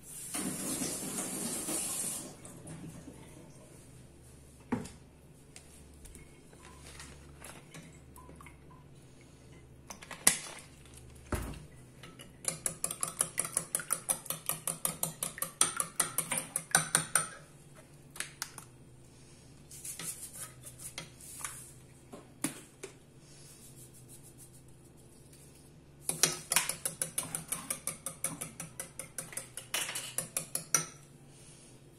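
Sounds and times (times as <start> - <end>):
whisk clicking against bowl: 12.4 - 17.4, 26.1 - 31.0.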